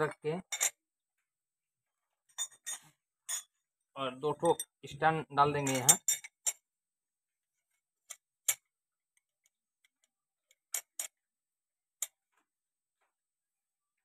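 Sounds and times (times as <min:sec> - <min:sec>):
metal clicks and clinks: 0:05.7 - 0:06.6, 0:09.9 - 0:11.2.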